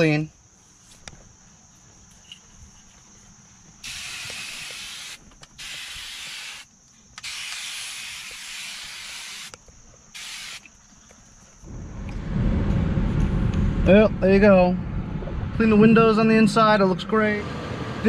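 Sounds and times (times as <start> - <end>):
aerosol can spraying: 3.8 - 9.6, 10.2 - 10.7.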